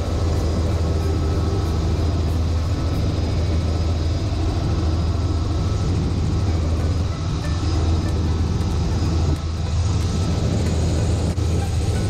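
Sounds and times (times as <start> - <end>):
faint high whine: 0.0 - 12.0
helicopter rotor and engine drone: 0.0 - 12.0.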